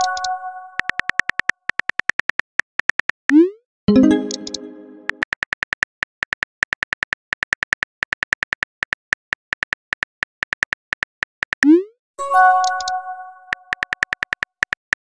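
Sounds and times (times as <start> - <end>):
chime: 12.2 - 13.6.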